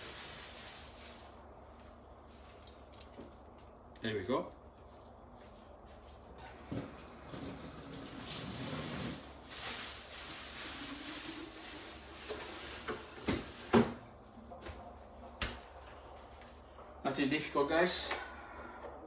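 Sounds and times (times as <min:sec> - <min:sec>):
water running from a tap: 0:06.7 - 0:09.2.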